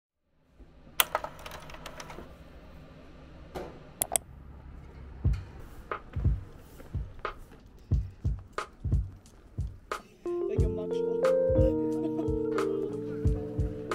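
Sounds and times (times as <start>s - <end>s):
music with kick-drum beat: 5.3s - 13.9s.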